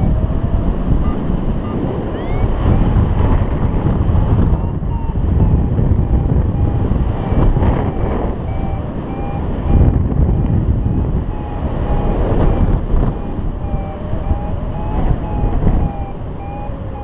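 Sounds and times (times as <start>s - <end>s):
short electronic beeps: 0.0s - 0.3s, 0.9s - 17.0s
wind rush on microphone: 0.0s - 17.0s.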